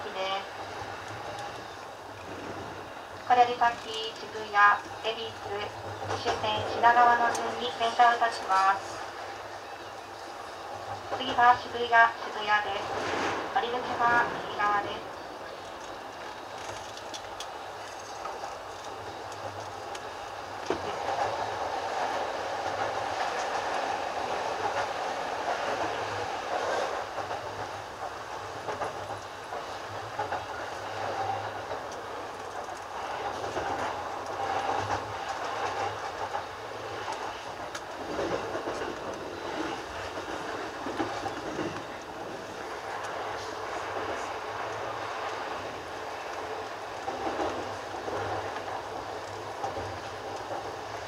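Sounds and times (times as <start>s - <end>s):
wheels clacking over rail joints: 12.8s - 51.0s.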